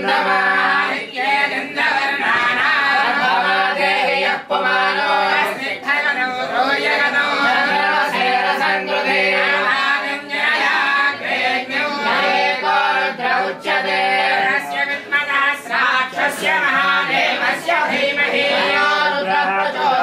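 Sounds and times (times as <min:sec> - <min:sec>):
group singing a chant: 0:00.0 - 0:20.0.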